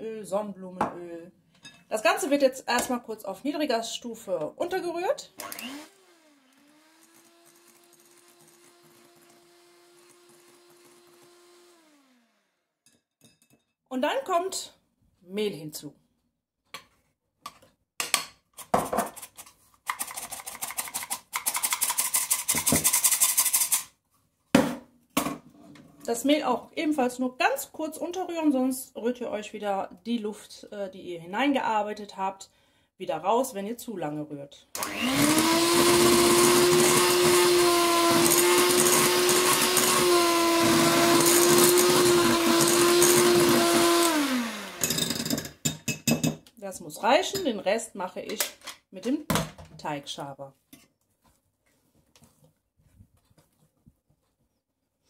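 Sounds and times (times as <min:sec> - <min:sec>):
electric hand mixer running: 0:05.3 - 0:12.6, 0:34.8 - 0:45.3.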